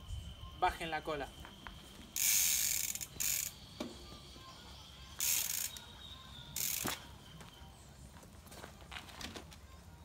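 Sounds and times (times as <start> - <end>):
bicycle freehub ratcheting: 2.1 - 3.7, 5.2 - 5.9, 6.6 - 7.0.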